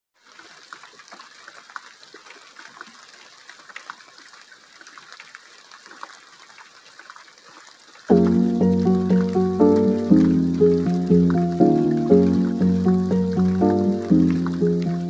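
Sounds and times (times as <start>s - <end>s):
rain falling: 3.2s - 15.0s
loud music with chords: 8.1s - 15.0s.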